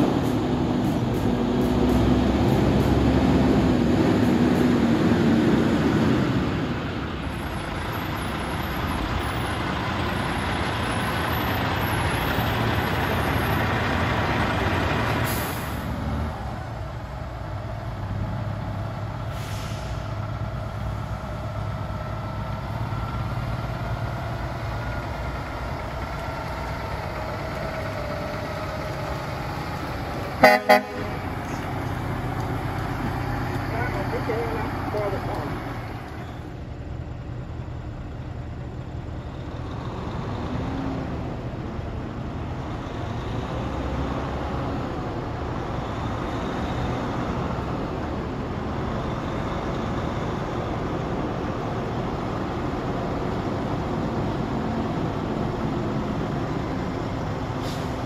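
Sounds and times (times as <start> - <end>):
trucks driving past: 0.0 - 58.0
truck horn toots: 30.4 - 31.3.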